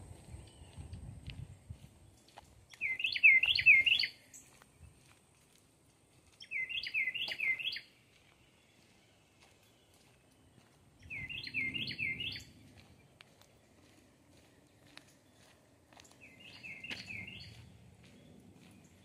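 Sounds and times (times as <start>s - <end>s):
songbird singing swooping notes: 2.8s - 4.4s, 6.4s - 8.0s, 11.0s - 12.6s, 16.2s - 17.7s.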